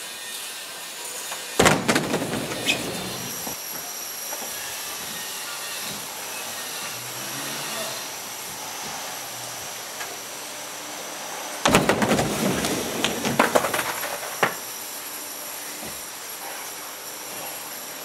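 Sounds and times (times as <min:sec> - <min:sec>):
skateboard clattering on wood: 0:01.6 - 0:03.6, 0:11.6 - 0:14.6
skater slamming onto wooden ramp: 0:01.6 - 0:03.6, 0:11.6 - 0:14.6.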